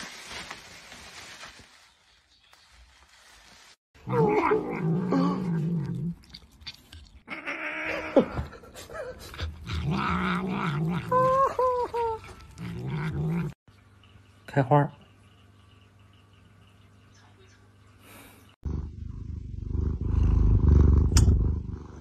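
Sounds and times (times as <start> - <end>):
cat growling: 4.0 - 6.3, 9.3 - 13.6.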